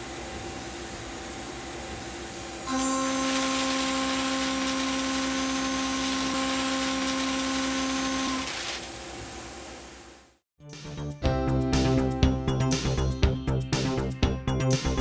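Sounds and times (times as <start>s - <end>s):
milling cutter whining and hissing: 0.0s - 10.1s.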